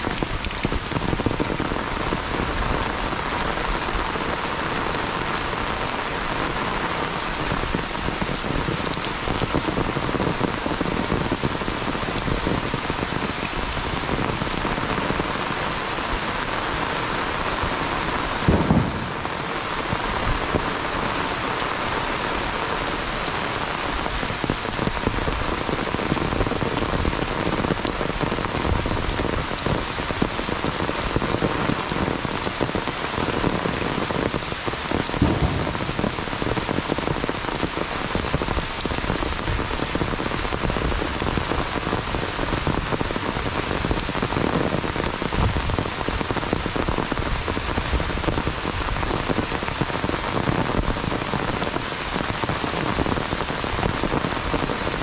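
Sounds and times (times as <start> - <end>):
heavy rain falling: 0.0 - 55.0
low thump: 18.5 - 19.6, 35.2 - 36.6.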